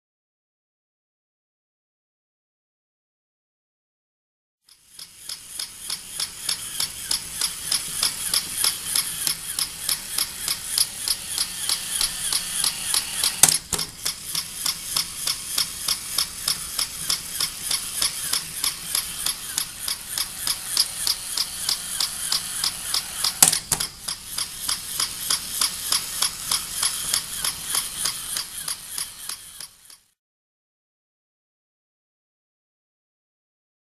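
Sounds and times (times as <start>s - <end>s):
toy motor and gears clattering: 4.7s - 30.2s.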